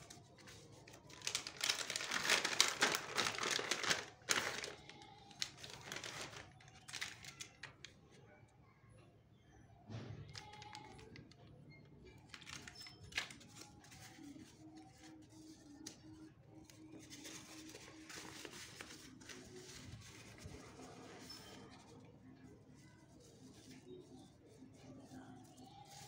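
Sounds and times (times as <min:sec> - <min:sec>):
foil sachets crinkling: 0:00.0 - 0:07.9, 0:10.3 - 0:11.3, 0:12.2 - 0:22.0
paper wrapper rustling: 0:00.0 - 0:08.0, 0:10.3 - 0:11.4, 0:12.2 - 0:26.0.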